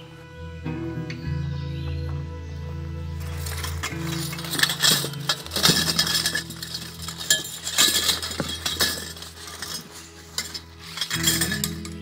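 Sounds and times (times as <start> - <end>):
metal poles clinking: 3.2 - 12.0.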